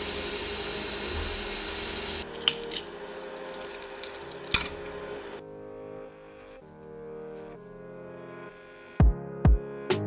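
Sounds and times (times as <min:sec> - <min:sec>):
stepper motors whirring: 0:00.0 - 0:05.1.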